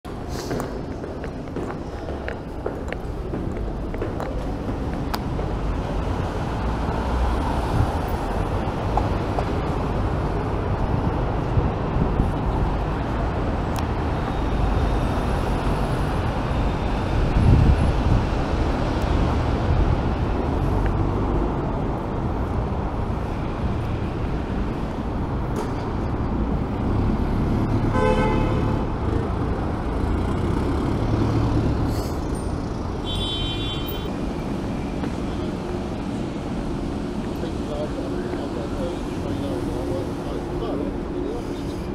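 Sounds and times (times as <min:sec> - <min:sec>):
road traffic rumble: 0:00.0 - 0:41.9
car horn: 0:27.9 - 0:28.9, 0:33.0 - 0:34.1.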